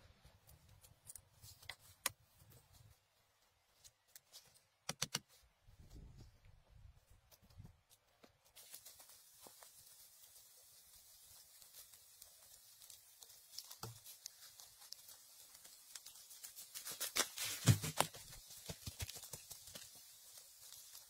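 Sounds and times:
moss being pulled up: 0:07.9 - 0:21.0
dry leaves rustling and crunching: 0:08.5 - 0:21.0.

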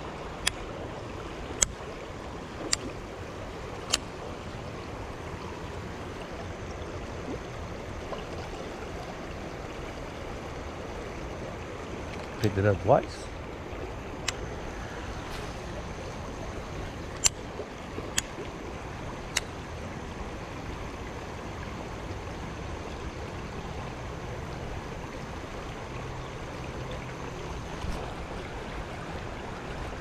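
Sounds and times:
river water running over rocks: 0:00.0 - 0:30.0
sharp clicks: 0:14.2 - 0:14.4, 0:17.1 - 0:17.4, 0:19.3 - 0:19.5.

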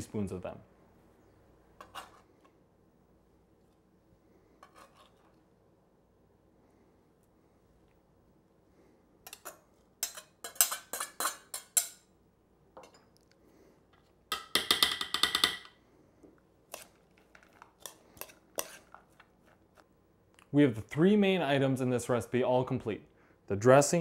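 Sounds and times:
knife scraping on plastic cutting board: 0:04.6 - 0:05.4, 0:18.2 - 0:19.2
utensils clinking against ceramic bowl: 0:09.3 - 0:12.0.

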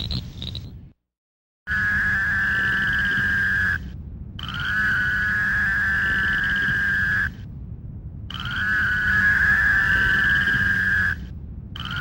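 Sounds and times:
toad buzzing call: 0:01.7 - 0:07.4, 0:08.3 - 0:12.0.

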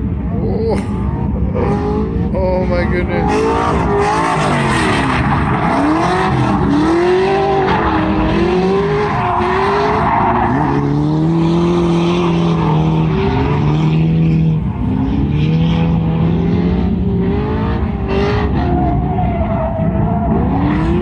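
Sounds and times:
car engine revving: 0:00.0 - 0:21.0
tires sliding on track: 0:01.1 - 0:21.0.

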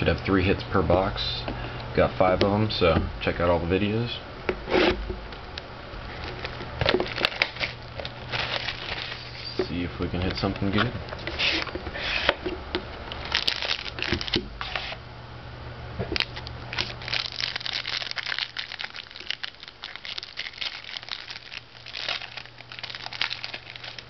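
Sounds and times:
foil wrapper crinkling and tearing: 0:06.1 - 0:09.5, 0:13.1 - 0:15.0, 0:16.2 - 0:24.0.

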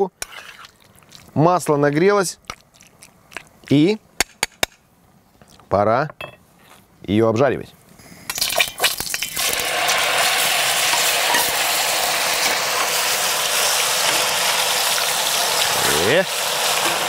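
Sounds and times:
pork sizzling in hot oil: 0:00.0 - 0:01.4, 0:08.3 - 0:17.0
metal utensils clinking on skillet: 0:10.9 - 0:11.6.

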